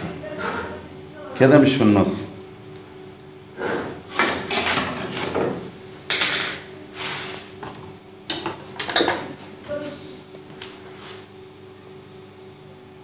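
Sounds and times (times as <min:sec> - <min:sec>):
metal tools knocking on wood: 0:04.2 - 0:06.6.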